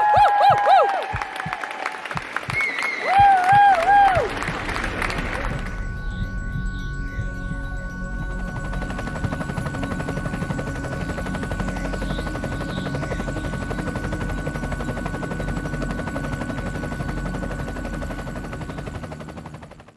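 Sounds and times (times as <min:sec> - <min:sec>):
drone propellers buzzing: 0:03.5 - 0:19.6
high motor whine: 0:03.9 - 0:19.5.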